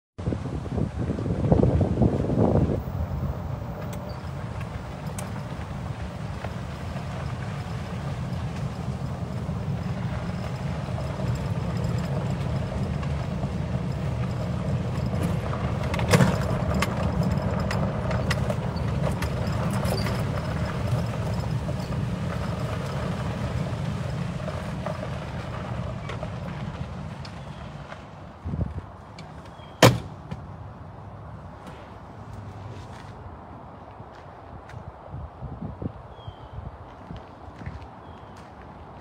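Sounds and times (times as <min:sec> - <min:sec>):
vehicle rumbling on dirt track: 0:00.2 - 0:39.0
light rattles: 0:03.6 - 0:27.7
thump: 0:29.8 - 0:30.4.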